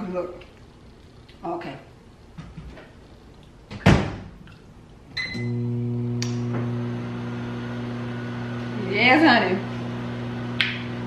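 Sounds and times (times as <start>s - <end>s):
microwave oven humming: 5.2s - 11.0s.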